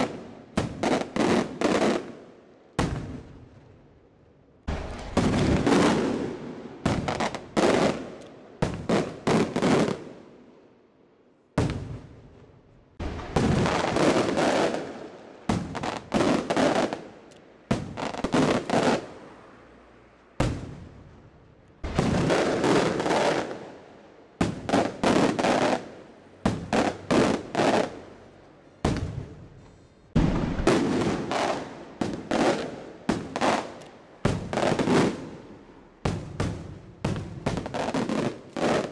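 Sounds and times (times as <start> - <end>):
rolling echo: 28.8 - 32.3.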